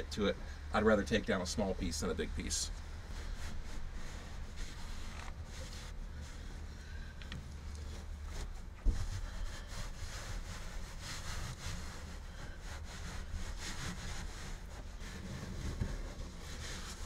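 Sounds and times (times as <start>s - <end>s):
scratchy rubbing on fabric: 3.1s - 6.7s, 7.8s - 17.0s.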